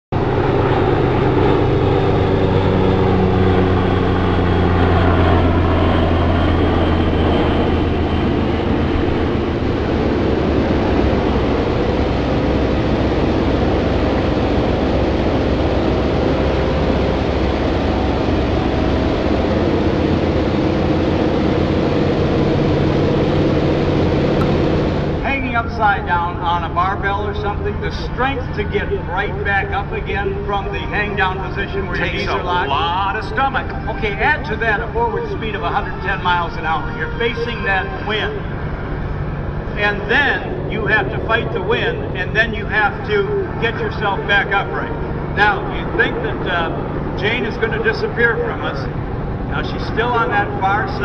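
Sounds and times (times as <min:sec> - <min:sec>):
biplane engine droning: 0:00.1 - 0:51.0
wind rush: 0:00.2 - 0:27.1.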